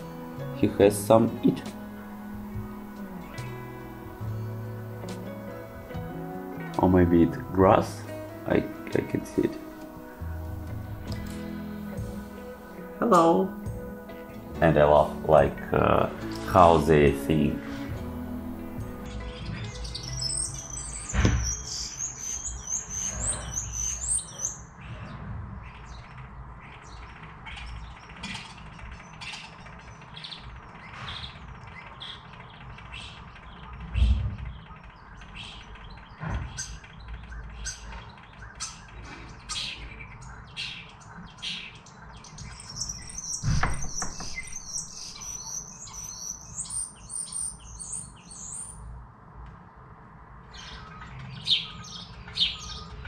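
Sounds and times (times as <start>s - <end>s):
small birds chirping and twittering: 0.0s - 53.0s
low thumps: 43.0s - 45.2s.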